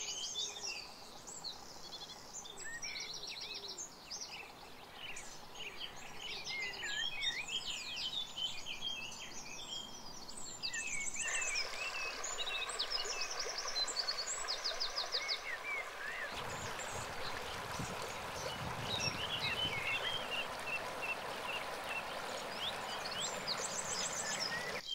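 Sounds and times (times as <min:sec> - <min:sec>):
birds chirping and trilling: 0:00.0 - 0:24.9
river water rushing over cobbles: 0:11.1 - 0:24.9.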